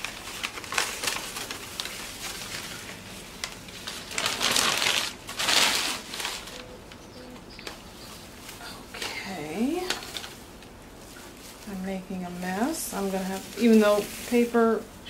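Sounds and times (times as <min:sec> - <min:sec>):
paper rustling and crinkling: 0:00.0 - 0:15.0.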